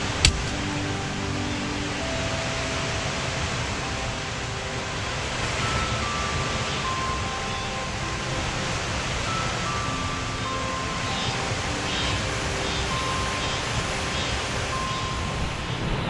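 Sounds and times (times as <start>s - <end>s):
stream rushing: 0.0s - 16.0s.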